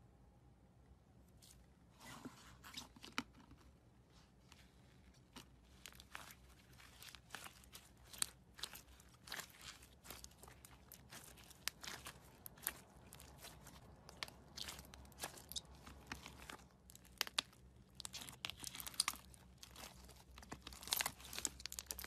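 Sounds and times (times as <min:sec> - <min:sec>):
slime crackling when squeezed: 0:05.7 - 0:22.0.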